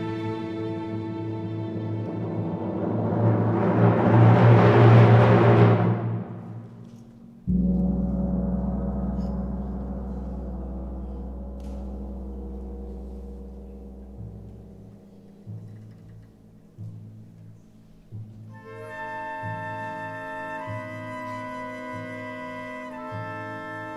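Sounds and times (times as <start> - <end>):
orchestra playing: 0.0 - 15.7, 18.5 - 23.9
low sustained orchestral tones: 0.0 - 23.9
tam-tam struck and ringing: 7.5 - 15.5.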